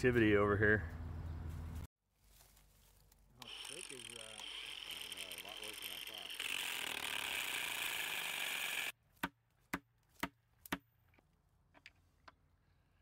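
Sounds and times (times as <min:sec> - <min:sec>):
angle grinder cutting steel: 0:03.4 - 0:08.9.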